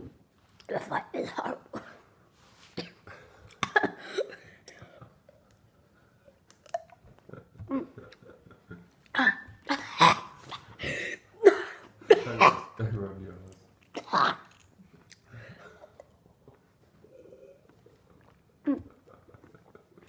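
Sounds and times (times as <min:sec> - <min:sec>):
boy chewing with wet mouth noises: 0:02.7 - 0:10.8, 0:13.4 - 0:20.0.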